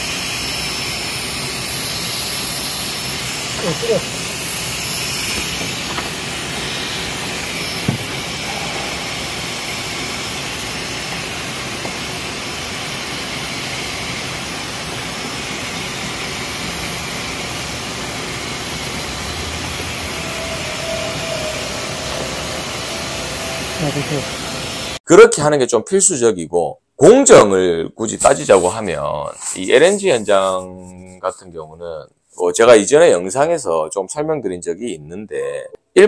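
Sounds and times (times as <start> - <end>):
rushing hiss of air flow: 0.0 - 25.0.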